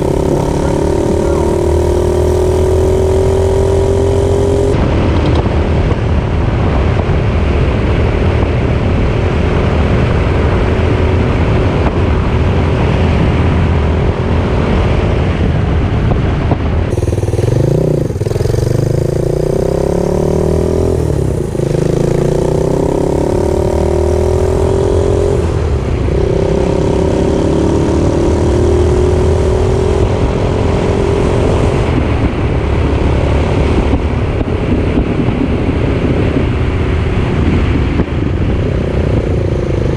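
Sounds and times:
small motorcycle engine: 0.0s - 5.4s, 16.9s - 33.8s.

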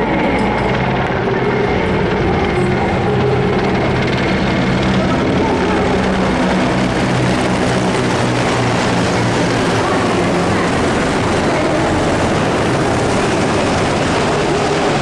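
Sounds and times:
helicopters flying overhead: 0.0s - 15.0s.

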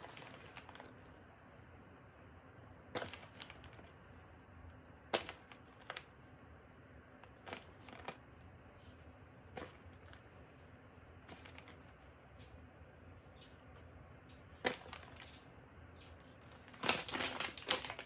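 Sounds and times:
plastic bag crinkling: 0.0s - 1.0s, 2.9s - 4.0s, 7.4s - 8.2s, 11.3s - 12.0s, 14.6s - 15.2s, 16.5s - 18.0s.

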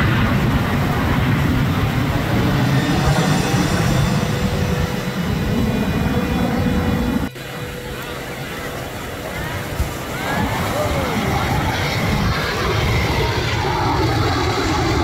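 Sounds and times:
jet engines roaring overhead: 0.0s - 15.0s.

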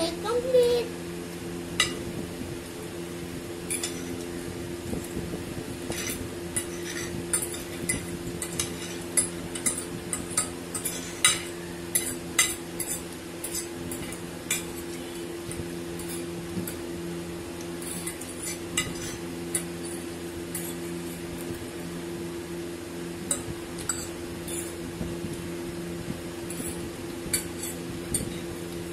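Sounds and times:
steady low hum: 0.0s - 28.9s
forks clinking on plates: 3.6s - 4.2s, 5.9s - 16.8s, 17.8s - 21.0s, 23.3s - 24.8s, 26.5s - 28.5s.

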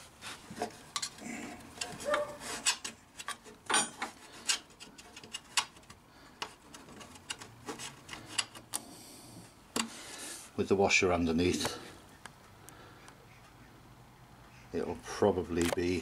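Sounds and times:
rubbing: 0.0s - 5.9s.

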